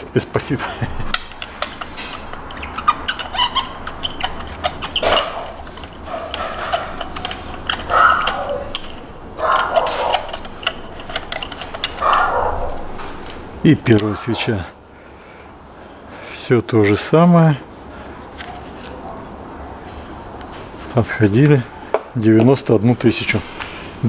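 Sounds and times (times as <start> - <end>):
ratchet wrench clicking: 1.1 - 13.4
short scraping rasps: 1.2 - 14.5.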